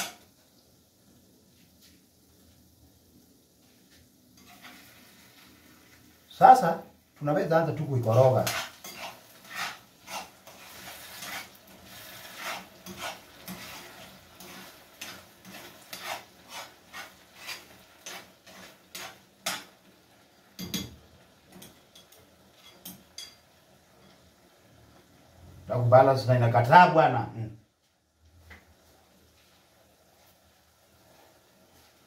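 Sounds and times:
utensil scraping frying pan: 4.4s - 6.0s, 7.8s - 24.3s.

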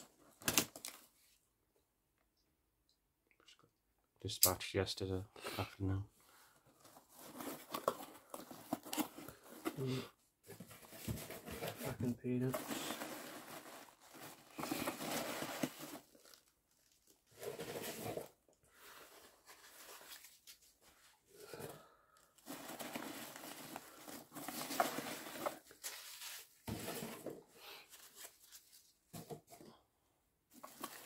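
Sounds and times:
packing peanuts rustling: 11.9s - 20.4s, 22.3s - 27.3s.

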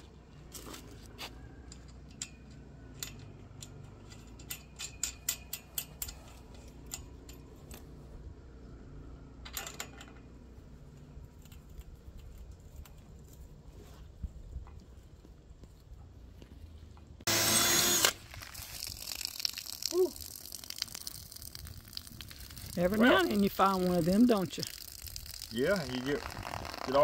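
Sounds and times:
metallic clicks of bolt and nut: 1.7s - 7.9s.

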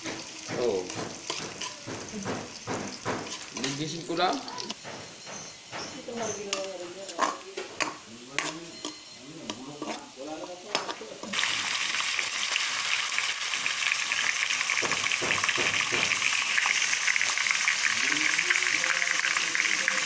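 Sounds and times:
meat sizzling in hot oil: 0.0s - 20.0s
metal spoon scraping in a wok: 0.2s - 11.4s.

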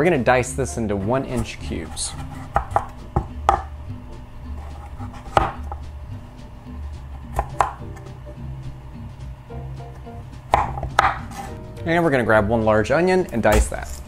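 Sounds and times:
knife chopping on wooden board: 1.3s - 3.7s, 4.6s - 5.9s, 7.2s - 8.2s, 9.9s - 11.6s.

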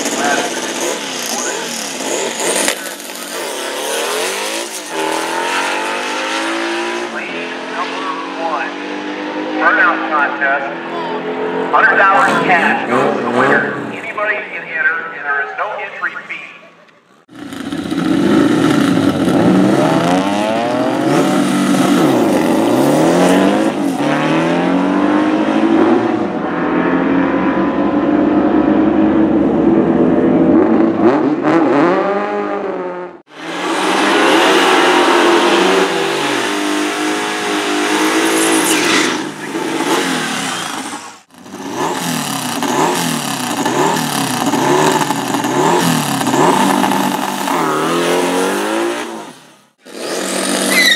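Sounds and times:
car engine accelerating hard: 0.0s - 13.9s, 17.3s - 50.9s
engine revving in blips: 17.3s - 29.0s, 30.4s - 50.9s.

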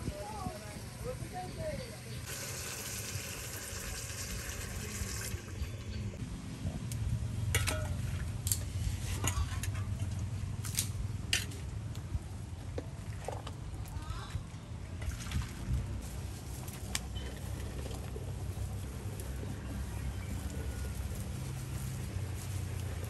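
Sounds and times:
water hissing in a pot: 2.2s - 5.6s
metal pots and dishes clinking: 7.5s - 8.2s, 9.1s - 10.1s.

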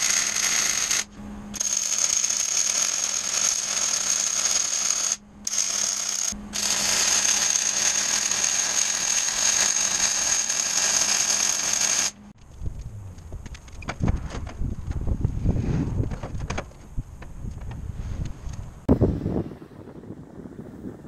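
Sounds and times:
low steady hum: 12.2s - 21.0s.

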